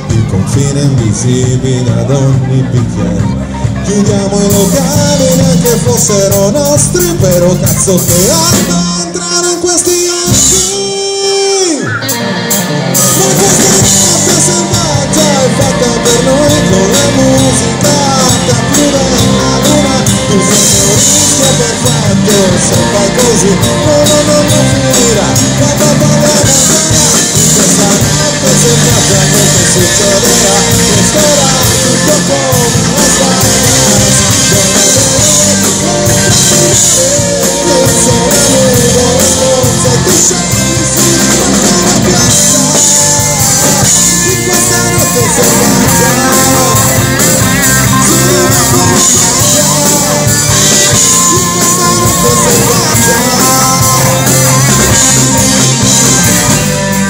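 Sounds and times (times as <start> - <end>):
rock band playing loudly: 0.0 - 57.0
wavering lead guitar line: 0.0 - 57.0.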